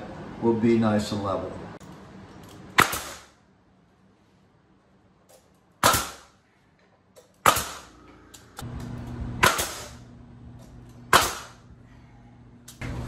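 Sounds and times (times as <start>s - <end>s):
pneumatic nail gun firing: 2.8s - 3.4s, 5.8s - 6.4s, 7.4s - 8.0s, 9.4s - 10.0s, 11.1s - 11.6s
low hum: 7.6s - 13.0s.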